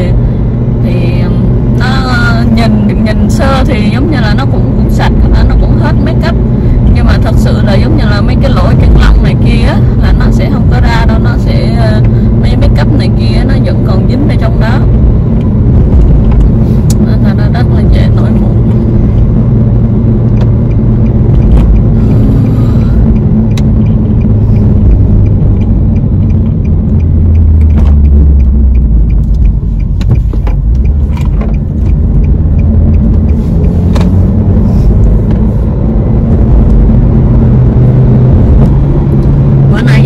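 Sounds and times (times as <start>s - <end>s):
engine and tyres rumbling: 0.0s - 40.0s
sharp clicks: 20.3s - 36.9s.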